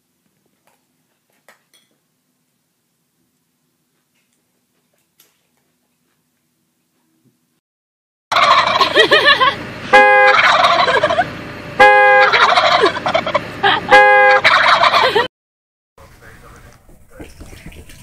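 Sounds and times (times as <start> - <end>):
turkeys gobbling: 8.3 - 9.5, 10.2 - 11.3, 12.1 - 15.3.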